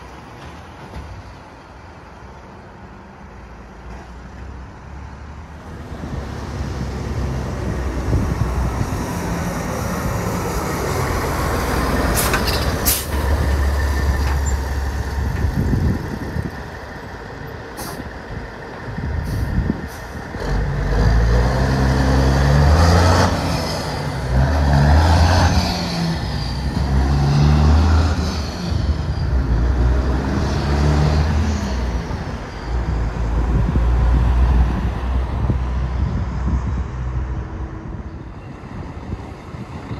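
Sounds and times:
diesel truck engine shifting gears: 6.0s - 39.9s
air brakes hissing: 12.2s - 13.2s, 17.8s - 18.1s, 19.2s - 20.3s.

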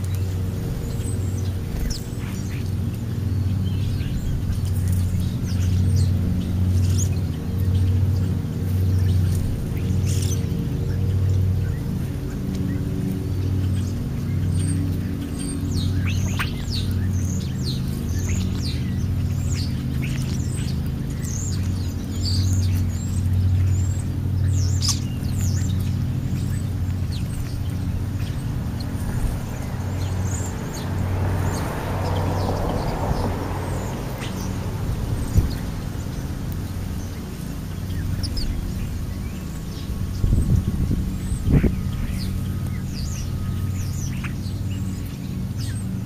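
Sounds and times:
low pulsing hum: 0.0s - 46.0s
starlings whistling and chirping: 0.0s - 46.0s.

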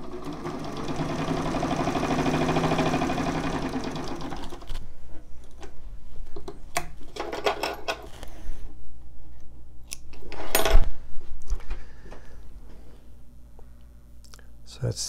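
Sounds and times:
sewing machine stitching: 0.0s - 4.8s.

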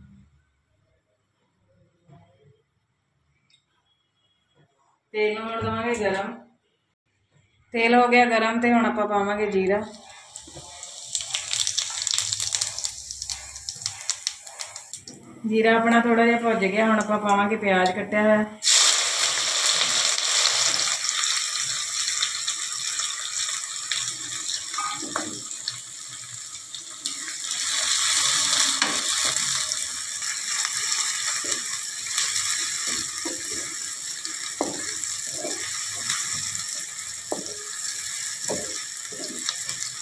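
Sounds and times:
onions sizzling in hot oil: 9.9s - 15.0s, 18.6s - 40.0s.

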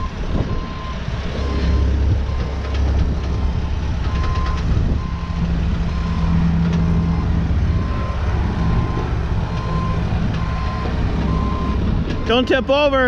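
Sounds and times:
diesel engine droning: 0.0s - 13.0s
travel alarm beeping: 4.0s - 12.5s.

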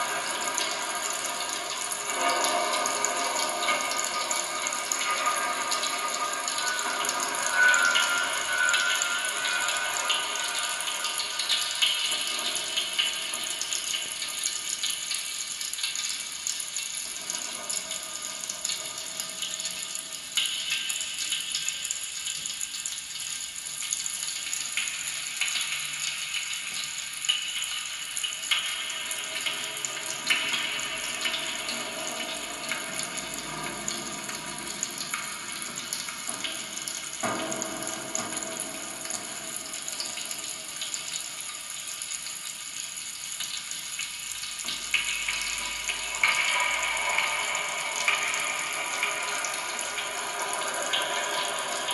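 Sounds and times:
fizzing crackling hiss: 0.0s - 51.9s
faint steady high tones: 4.0s - 13.7s.

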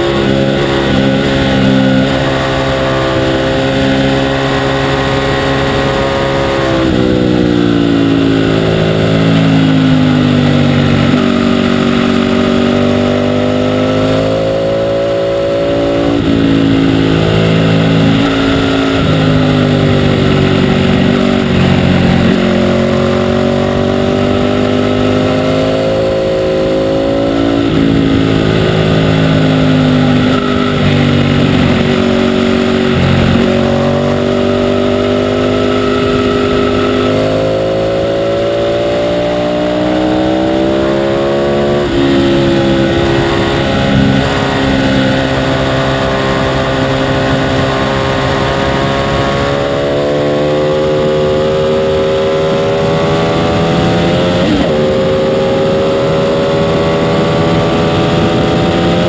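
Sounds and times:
motorcycle engine racing: 0.0s - 59.0s.

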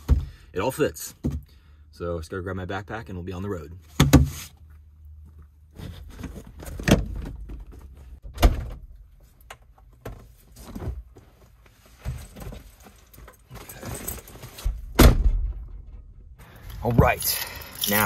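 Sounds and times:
camping gear knocks and thumps: 9.8s - 15.5s
heavy thud: 14.7s - 15.9s.

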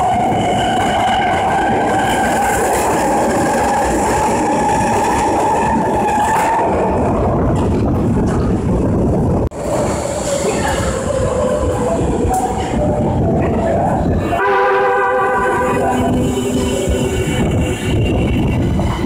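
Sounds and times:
subway train wheels rumbling: 0.0s - 19.0s.

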